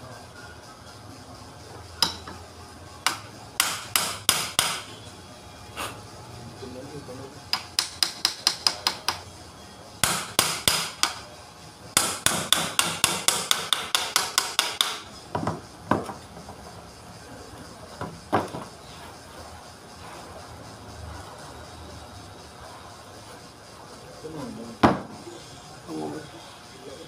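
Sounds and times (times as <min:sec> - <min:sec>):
hammer tapping on metal: 0:02.0 - 0:02.4, 0:03.0 - 0:04.9, 0:07.5 - 0:09.2, 0:10.0 - 0:11.2, 0:12.0 - 0:16.1.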